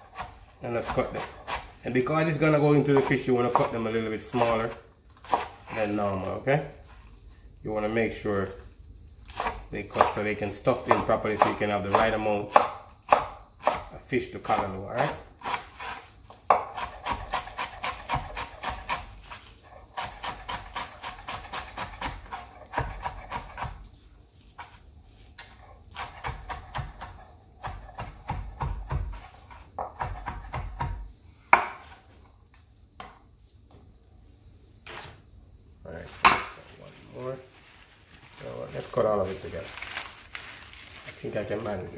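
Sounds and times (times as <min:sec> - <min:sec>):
knife chopping on wooden board: 0:02.9 - 0:03.8, 0:05.2 - 0:05.6, 0:10.8 - 0:13.9, 0:15.4 - 0:19.1, 0:19.9 - 0:23.8, 0:25.4 - 0:32.0.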